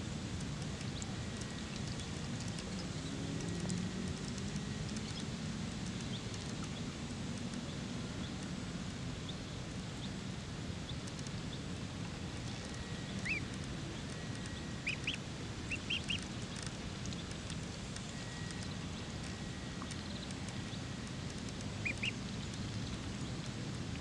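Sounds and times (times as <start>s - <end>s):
background hiss: 0.0s - 24.0s
duckling peeping: 12.5s - 16.7s, 21.8s - 22.2s.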